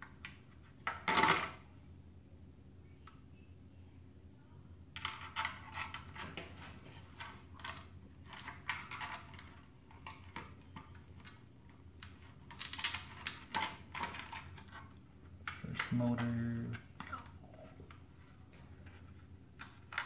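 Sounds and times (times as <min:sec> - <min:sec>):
low steady hum: 0:00.0 - 0:20.0
plastic parts clicking and scraping: 0:05.0 - 0:17.3, 0:17.9 - 0:20.0.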